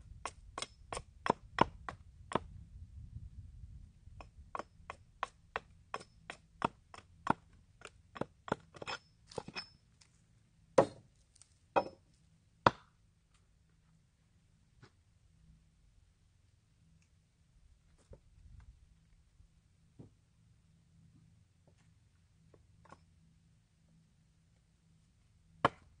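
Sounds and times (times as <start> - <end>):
hatchet striking wood: 0.6 - 2.5, 4.2 - 9.7, 10.8 - 11.1, 11.8 - 12.0, 12.6 - 12.9, 25.6 - 25.9.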